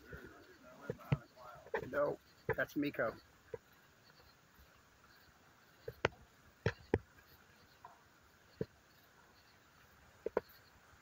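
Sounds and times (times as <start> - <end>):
night insects chirring: 0.0 - 11.0
sharp clicks and knocks: 0.8 - 2.8, 5.8 - 8.8, 10.2 - 10.7.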